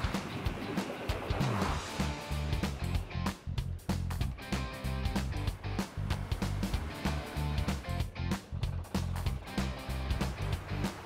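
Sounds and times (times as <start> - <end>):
drum beat: 0.0 - 11.0
bass line: 1.2 - 11.0.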